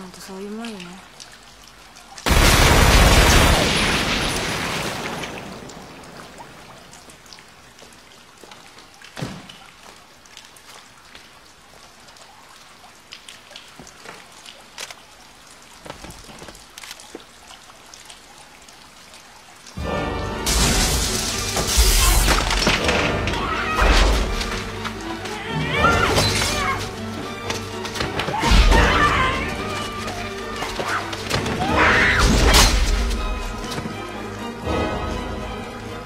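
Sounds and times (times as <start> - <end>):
gunfire burst echoing: 2.3 - 4.2.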